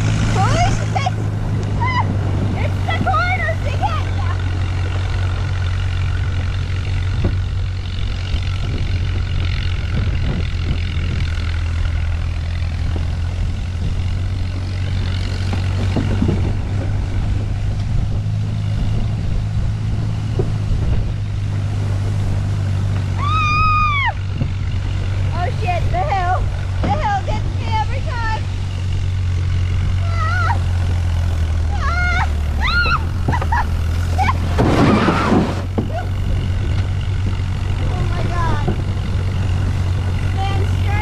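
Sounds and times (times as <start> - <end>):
tractor engine running: 0.0 - 41.0
person shouting: 30.0 - 30.6, 31.7 - 33.1.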